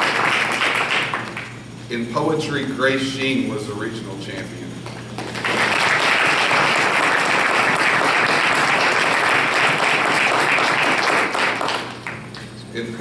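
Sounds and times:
audience applauding: 0:00.0 - 0:01.6, 0:05.2 - 0:12.3.

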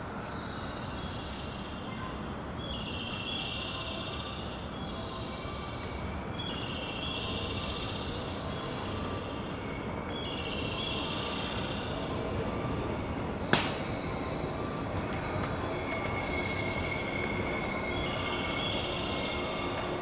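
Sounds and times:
train rumble: 0:00.0 - 0:20.0
high wheel squeal: 0:15.5 - 0:20.0.

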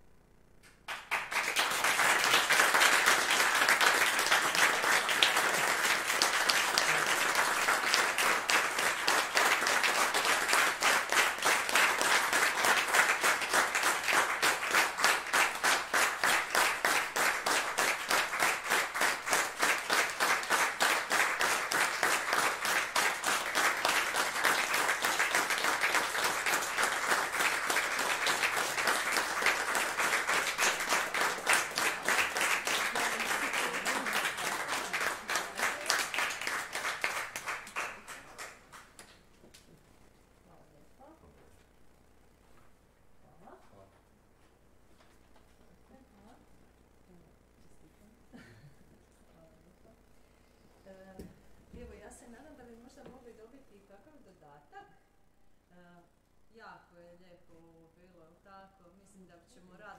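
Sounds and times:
audience applause: 0:00.9 - 0:39.1.

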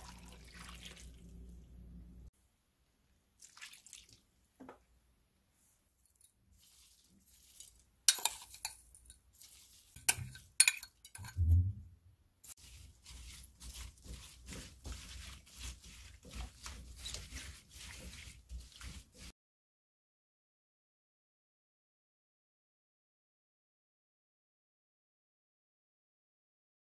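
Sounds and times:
hands mixing cubes in water: 0:00.0 - 0:01.7, 0:03.4 - 0:04.4, 0:05.9 - 0:11.4, 0:12.4 - 0:19.3
metal spoon clinking on pan: 0:08.1 - 0:09.2, 0:10.0 - 0:11.4
low thump: 0:11.4 - 0:11.9.

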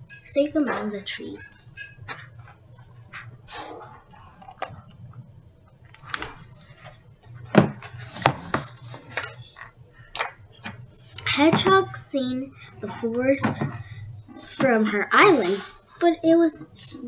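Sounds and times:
paper rustling: 0:05.9 - 0:09.7.

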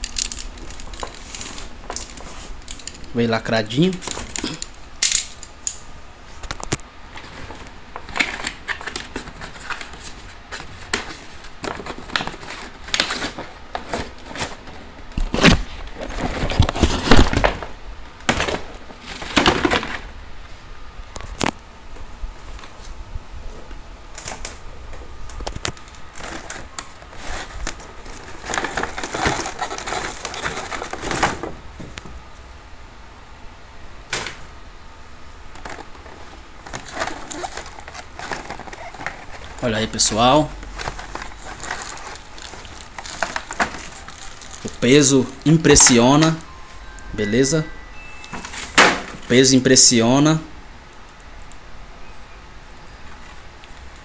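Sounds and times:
packaging crinkling and crackling: 0:00.0 - 0:05.3, 0:06.4 - 0:17.7, 0:25.2 - 0:31.6, 0:35.5 - 0:46.6.

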